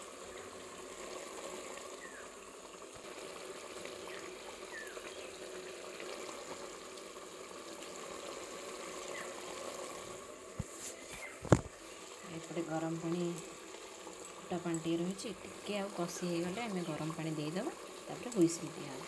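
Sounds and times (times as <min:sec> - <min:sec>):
curry bubbling and hissing: 0:00.0 - 0:19.0.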